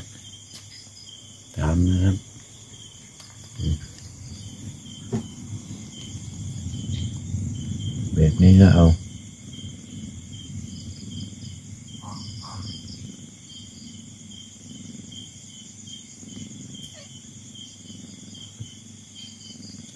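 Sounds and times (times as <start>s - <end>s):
crickets chirping: 0.0s - 19.9s
low rumble: 3.6s - 13.1s.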